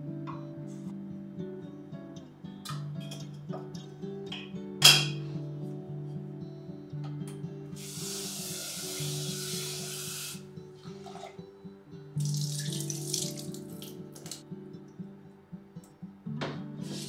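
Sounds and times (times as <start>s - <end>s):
background music: 0.0s - 17.0s
water poured into metal sink: 12.2s - 14.4s.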